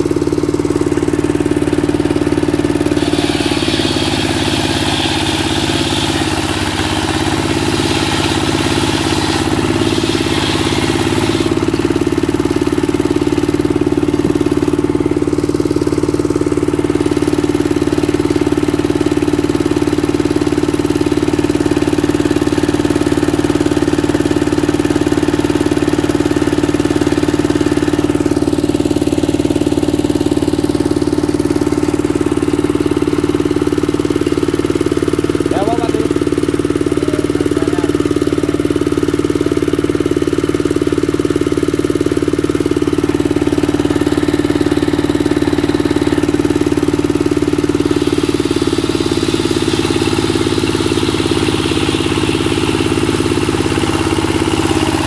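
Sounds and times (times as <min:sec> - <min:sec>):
diesel engine running: 0:00.0 - 0:55.0
circular saw cutting board: 0:02.6 - 0:13.2, 0:47.8 - 0:55.0.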